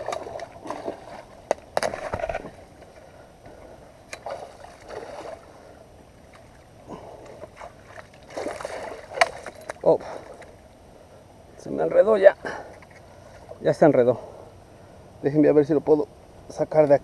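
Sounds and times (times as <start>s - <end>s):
handling knocks and rustles: 0.0s - 3.0s, 7.3s - 10.5s
water splashing and sloshing: 0.0s - 11.1s.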